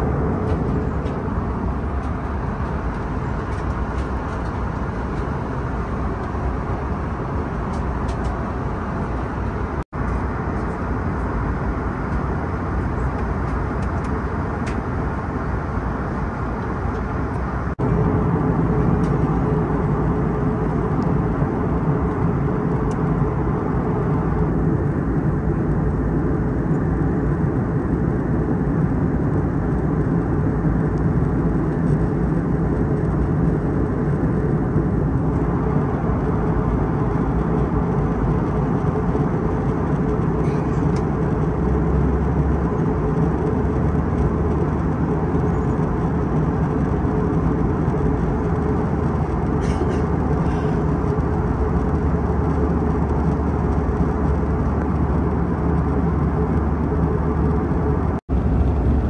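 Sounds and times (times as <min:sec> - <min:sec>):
airflow rush in cabin: 0:00.0 - 0:59.0
low engine hum: 0:00.0 - 0:59.0.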